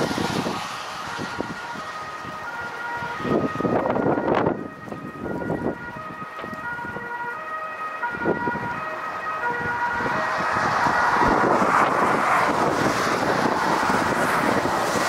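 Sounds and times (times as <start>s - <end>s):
jet engines at high thrust: 0.0s - 5.6s, 9.6s - 15.0s
wind buffeting microphone: 0.0s - 15.0s.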